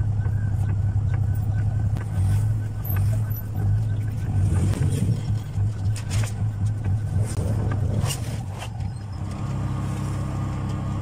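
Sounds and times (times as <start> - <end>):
motorcycle engine idling: 0.0 - 7.9.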